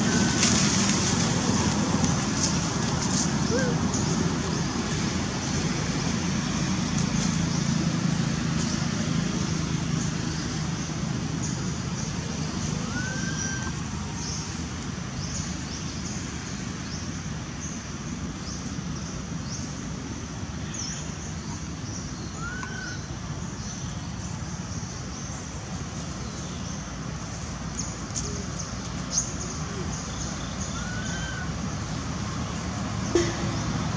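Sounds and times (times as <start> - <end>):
bird whistling: 12.8 - 13.8.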